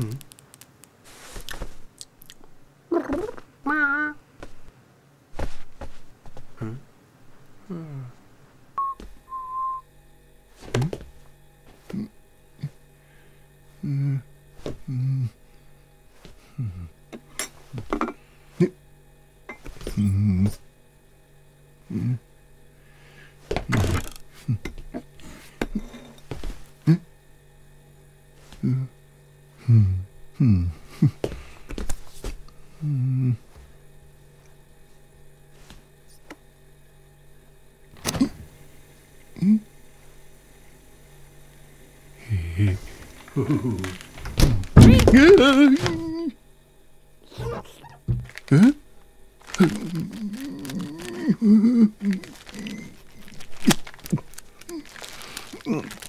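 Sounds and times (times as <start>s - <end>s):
low steady hum: 0.0s - 56.0s
cartoon voice falling in pitch: 2.9s - 4.2s, 47.3s - 48.0s
high beep tones: 8.8s - 9.8s
short voiced calls: 47.3s - 48.7s.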